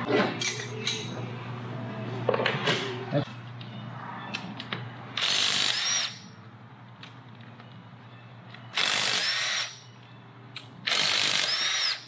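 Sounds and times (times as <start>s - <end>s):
power tool whining: 5.2s - 6.2s, 8.7s - 9.8s, 10.9s - 12.0s.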